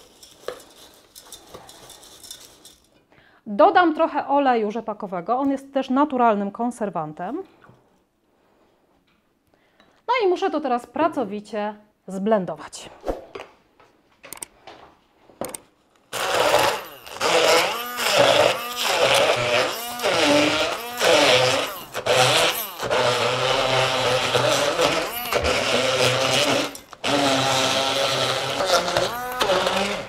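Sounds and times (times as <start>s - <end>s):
immersion blender running: 16.2s - 30.0s.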